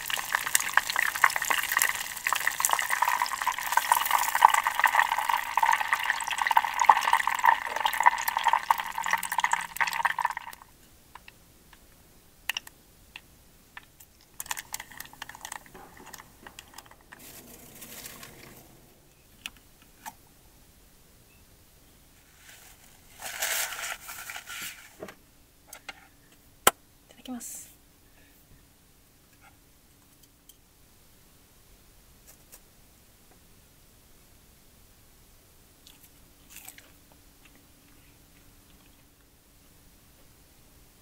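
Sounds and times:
hot oil crackling and sizzling: 0:00.0 - 0:10.7, 0:14.4 - 0:18.6
soft rustling: 0:15.7 - 0:19.0, 0:22.2 - 0:25.2.

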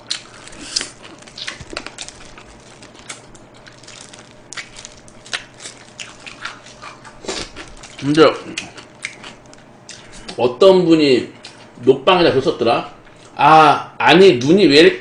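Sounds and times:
person chewing with mouth clicks: 0:00.0 - 0:10.4.

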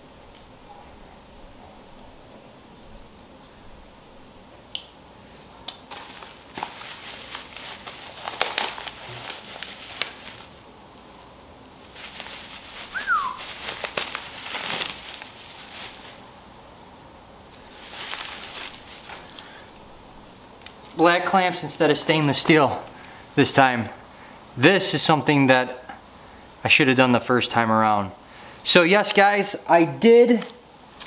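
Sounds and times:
plastic bags and bubble wrap rustling: 0:05.9 - 0:16.4, 0:17.5 - 0:22.8
short falling whistle: 0:12.9 - 0:13.4.

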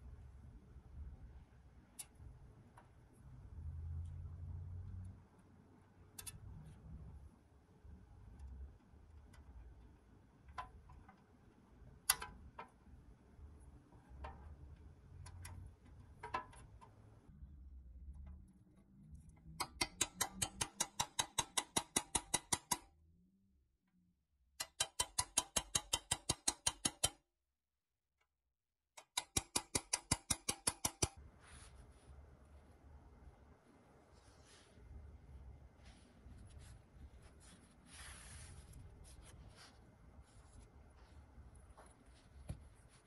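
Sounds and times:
socket ratchet clicking rapidly: 0:24.7 - 0:27.1.

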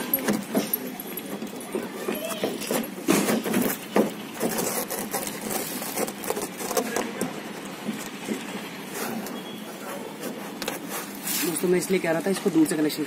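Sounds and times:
rustling of wiring harness: 0:00.0 - 0:12.9.

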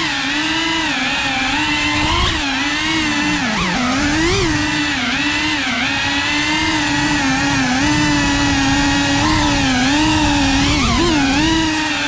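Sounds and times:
drone buzzing whine: 0:00.0 - 0:12.0.

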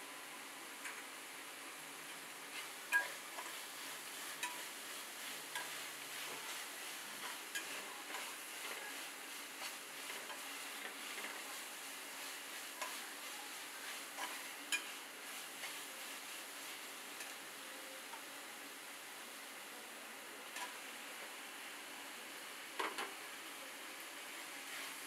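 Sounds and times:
onions sizzling: 0:00.8 - 0:19.4, 0:23.9 - 0:25.0
spatula scraping in a pot: 0:02.5 - 0:16.1.

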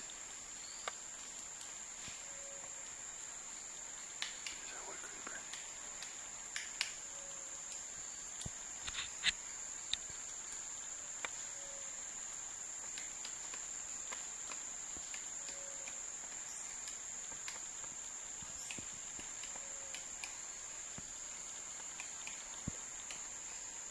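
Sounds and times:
insects droning: 0:00.0 - 0:23.9.

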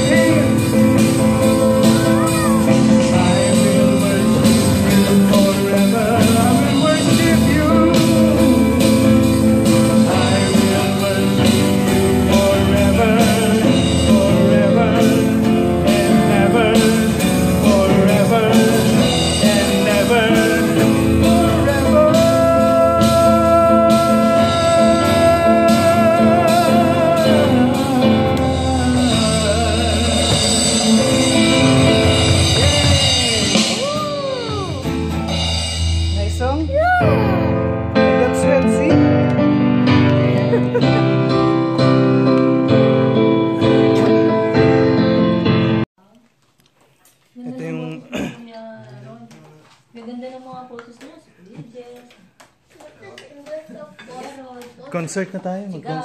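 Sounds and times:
man singing into microphone: 0:00.0 - 0:34.9
acoustic guitar: 0:00.0 - 0:45.9
keyboard: 0:00.0 - 0:45.9.

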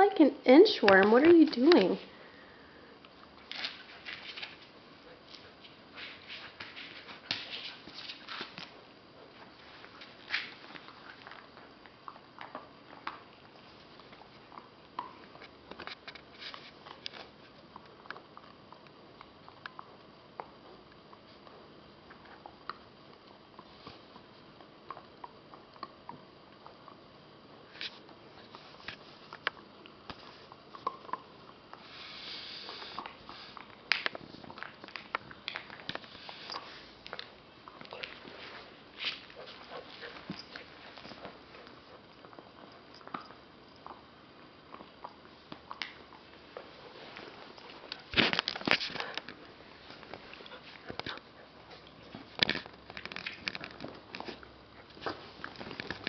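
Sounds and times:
puppy chewing a rug: 0:03.0 - 0:56.0
faint clicks and scratches: 0:03.4 - 0:27.0, 0:44.7 - 0:56.0.

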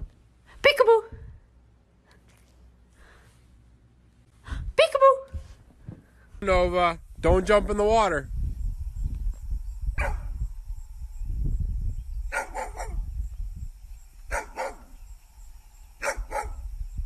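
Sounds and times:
dog barking: 0:10.0 - 0:10.3, 0:12.3 - 0:13.0, 0:14.3 - 0:14.9, 0:16.0 - 0:16.6.

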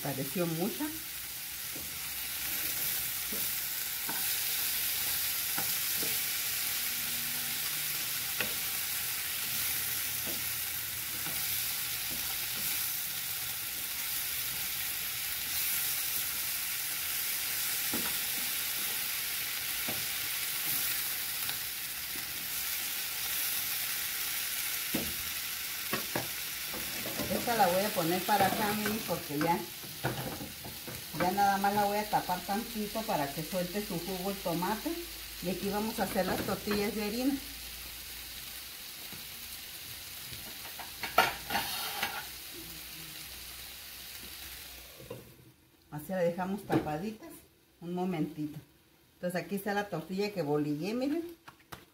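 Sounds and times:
food sizzling in a frying pan: 0:00.0 - 0:51.4
spoon scraping and knocking pan: 0:28.2 - 0:31.4, 0:40.4 - 0:42.3.

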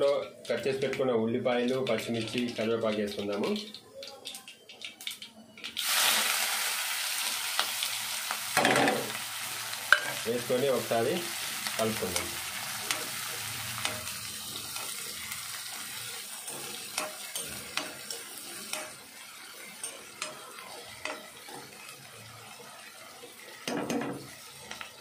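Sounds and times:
onions sizzling in hot oil: 0:00.0 - 0:25.0
steel spoon scraping a pan: 0:12.1 - 0:23.4.

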